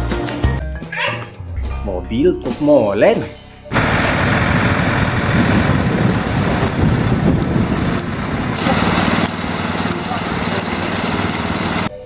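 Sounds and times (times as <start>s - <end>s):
concrete mixer truck rumbling: 3.7s - 12.0s.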